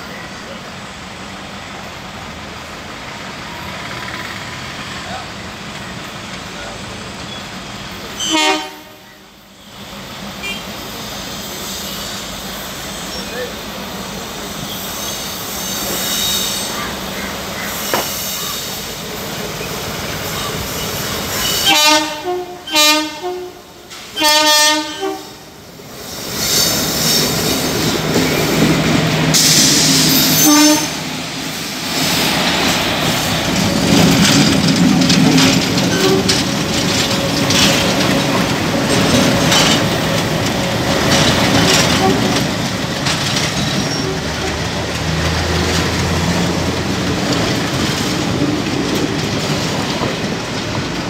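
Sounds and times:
diesel locomotives rumbling past: 0:00.0 - 0:51.0
locomotive horn blasts: 0:08.2 - 0:09.2, 0:21.6 - 0:23.6, 0:24.2 - 0:25.4, 0:30.4 - 0:31.0
wheels clicking on rails: 0:32.6 - 0:51.0.

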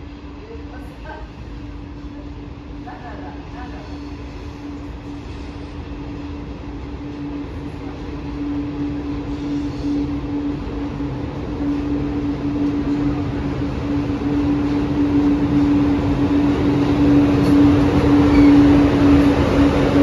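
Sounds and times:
freight train rumbling: 0:00.0 - 0:20.0
locomotive hum: 0:00.0 - 0:20.0.

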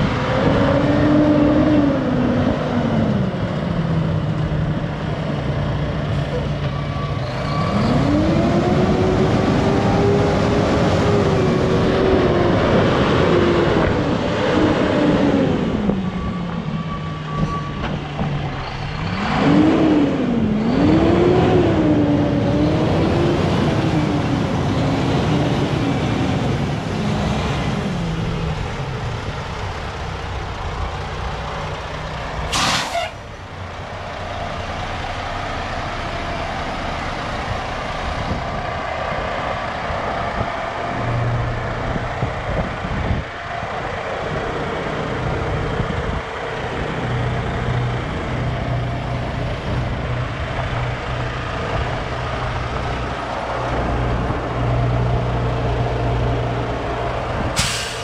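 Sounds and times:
diesel truck engine idling: 0:27.9 - 0:58.0
air brake hiss: 0:32.5 - 0:33.2, 0:57.6 - 0:58.0.

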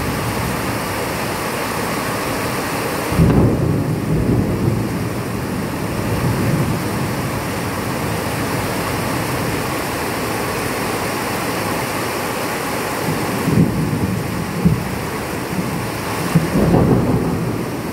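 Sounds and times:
steady rain: 0:00.0 - 0:17.9
low rumble of thunder: 0:03.1 - 0:09.8, 0:13.1 - 0:17.9.

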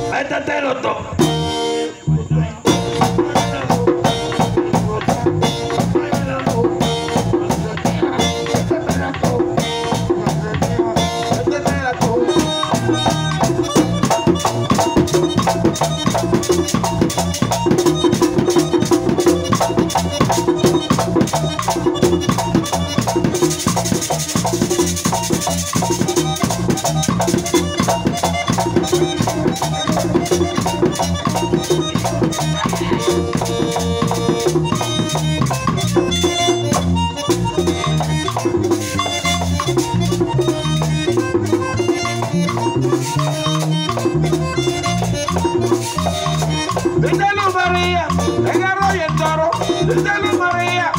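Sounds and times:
live band playing dance beat: 0:00.0 - 0:00.4, 0:01.1 - 0:50.9
hissing high percussion: 0:12.0 - 0:39.9.

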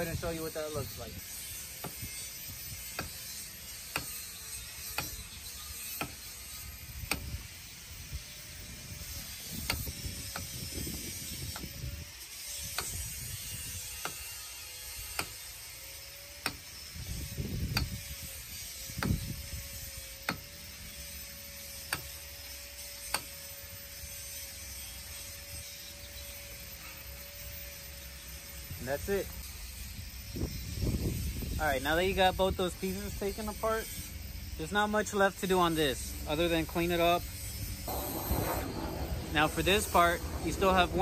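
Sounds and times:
metal sliding scrapes: 0:35.5 - 0:41.0.

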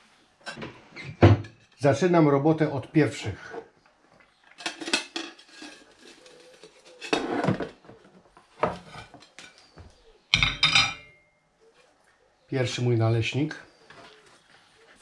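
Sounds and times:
plate ringing on metal grate: 0:10.3 - 0:11.4
ceramic plates clinking: 0:10.4 - 0:11.2.

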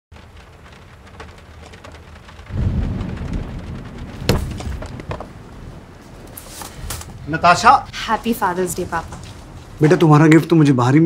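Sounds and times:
light rain falling: 0:00.1 - 0:11.0
thunder rumbling: 0:00.1 - 0:11.0
sharp knock: 0:04.3 - 0:05.2.

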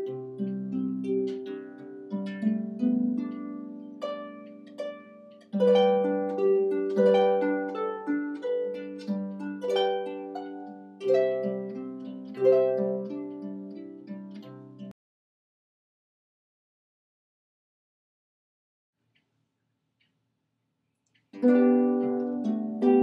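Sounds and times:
harp playing plucked notes: 0:00.0 - 0:14.9, 0:21.3 - 0:23.0.

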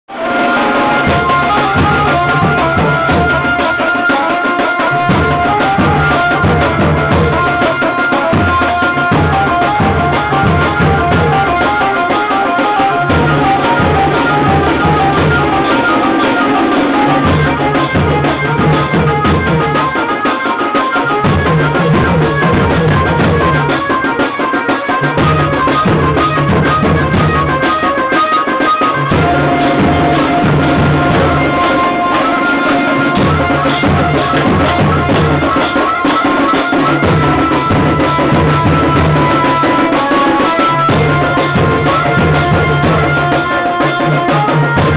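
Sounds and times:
amplified banjo melody: 0:00.1 - 0:44.9
bass drums beating: 0:00.7 - 0:03.7, 0:08.3 - 0:12.0, 0:12.9 - 0:19.8, 0:29.0 - 0:35.7.

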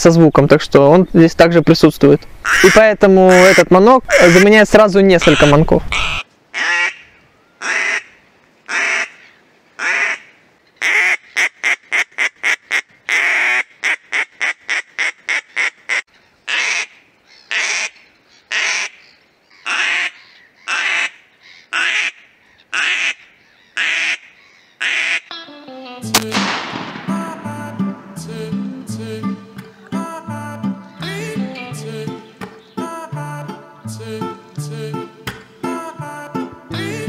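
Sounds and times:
duck call quacks: 0:02.4 - 0:04.6, 0:05.2 - 0:07.0, 0:07.6 - 0:08.1, 0:08.7 - 0:09.2, 0:09.8 - 0:16.9, 0:19.7 - 0:23.2, 0:23.8 - 0:25.5.

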